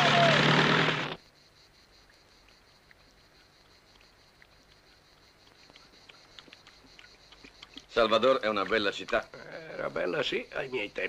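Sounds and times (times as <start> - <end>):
loud noise cutting off: 0.0 - 1.2
small chirps and ticks: 1.2 - 11.0.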